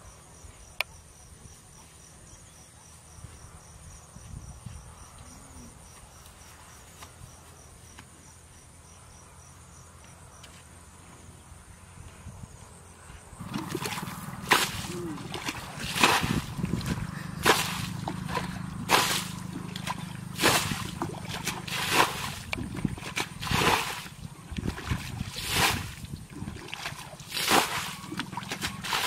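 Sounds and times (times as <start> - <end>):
steady low hum: 2.2 - 29.0
bucket splashing water: 13.4 - 29.0.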